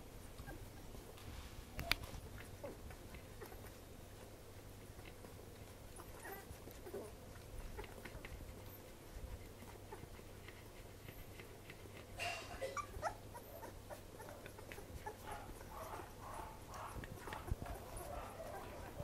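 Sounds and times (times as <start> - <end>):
puppies squeaking and whimpering: 0.2 - 1.0, 5.0 - 19.0
puppies suckling clicks: 0.2 - 12.2, 12.8 - 19.0.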